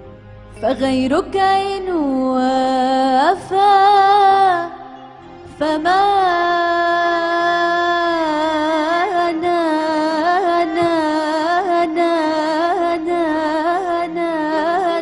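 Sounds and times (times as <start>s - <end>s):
woman singing long note: 5.6s - 15.0s.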